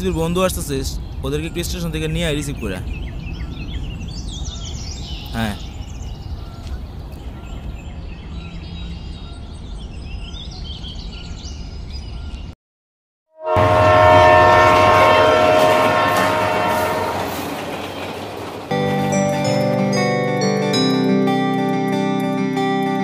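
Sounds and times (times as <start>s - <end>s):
birds chirping: 0.0s - 12.6s, 13.6s - 19.0s
train horn chord: 13.4s - 18.1s
passing train rumble: 13.4s - 21.0s.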